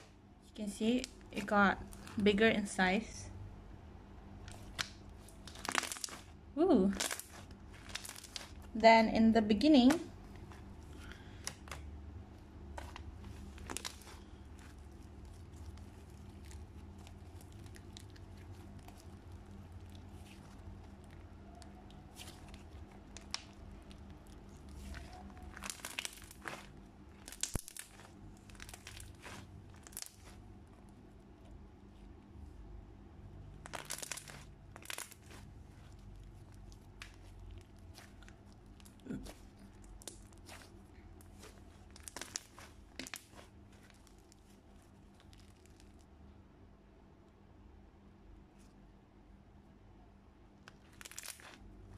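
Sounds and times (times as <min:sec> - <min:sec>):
low steady hum: 0:00.0 - 0:51.9
slime crackles and clicks: 0:04.4 - 0:08.7, 0:12.7 - 0:30.9, 0:33.6 - 0:46.1, 0:50.6 - 0:51.7.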